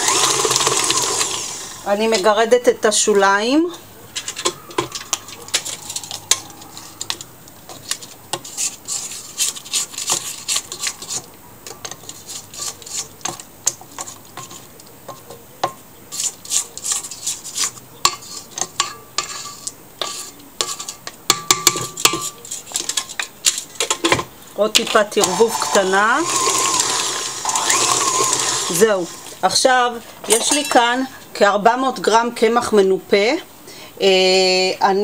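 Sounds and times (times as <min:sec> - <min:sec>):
spatula scraping metal bowl: 0:11.8 - 0:14.6, 0:19.2 - 0:21.0, 0:24.9 - 0:29.4.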